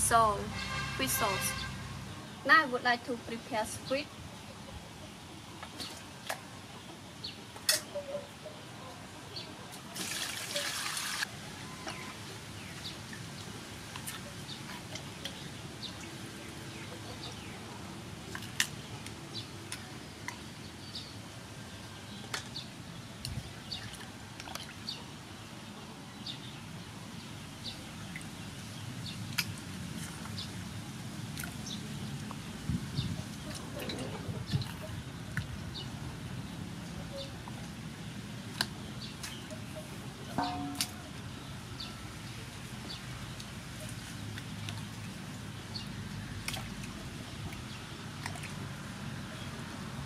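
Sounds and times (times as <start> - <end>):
rush of water: 9.8 - 17.4
water splashing in a metal basin: 9.9 - 11.3, 40.4 - 41.1, 46.4 - 48.9.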